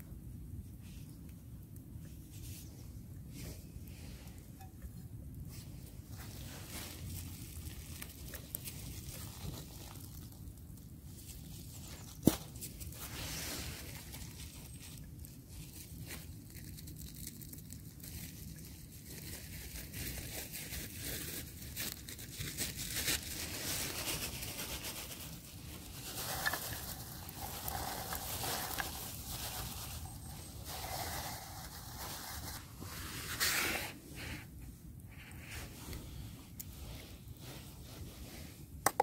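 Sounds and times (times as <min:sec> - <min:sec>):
plastic bag crinkling: 0:21.0 - 0:32.6.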